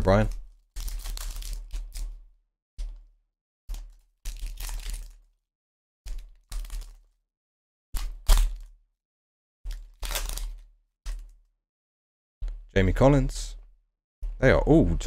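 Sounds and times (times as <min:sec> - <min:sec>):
plastic wrapper tearing open: 0:00.0 - 0:02.2, 0:03.7 - 0:05.3, 0:06.1 - 0:07.2, 0:08.0 - 0:08.7, 0:09.7 - 0:11.3.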